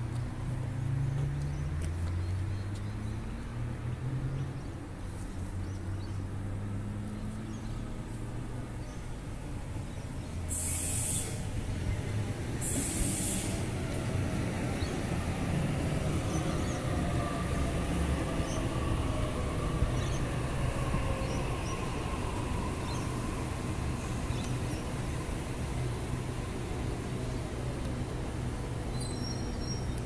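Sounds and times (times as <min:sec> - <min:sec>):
electric train rumbling and braking: 0:09.0 - 0:30.0
short air hisses: 0:10.5 - 0:11.5, 0:12.6 - 0:13.7.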